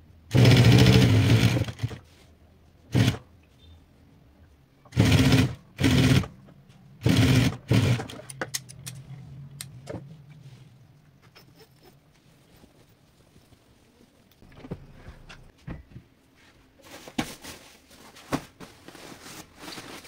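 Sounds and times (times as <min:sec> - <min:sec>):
sewing machine stitching: 0:00.3 - 0:02.0, 0:02.9 - 0:03.2, 0:04.9 - 0:06.4, 0:07.0 - 0:08.2
low hum: 0:08.2 - 0:15.9.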